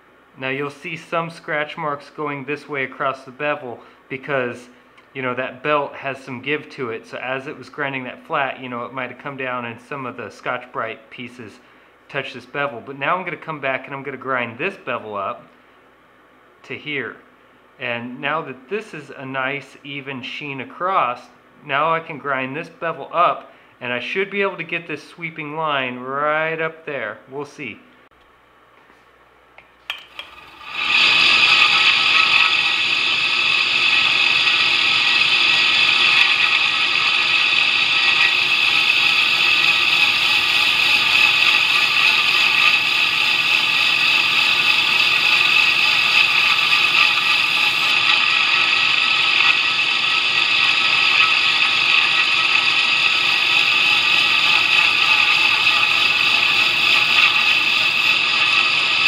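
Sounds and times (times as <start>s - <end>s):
belt grinder running: 29.9s - 59.0s
knife blade grinding on belt: 30.2s - 59.0s.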